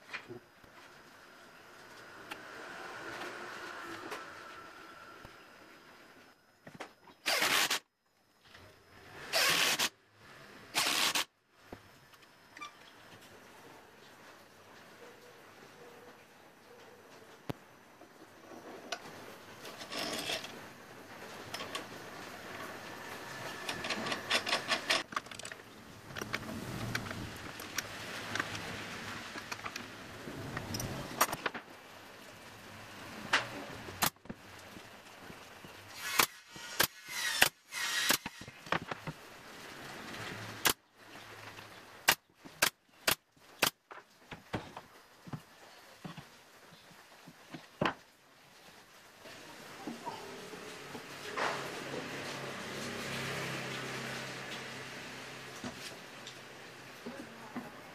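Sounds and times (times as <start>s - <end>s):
cordless drill running: 7.3s - 7.8s, 9.3s - 9.9s, 10.8s - 11.2s.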